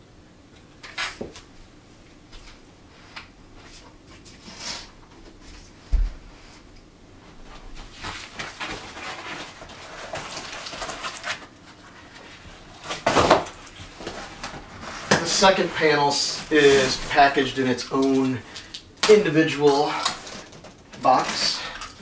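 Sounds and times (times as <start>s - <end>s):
cardboard and paper rustling: 7.8s - 22.0s.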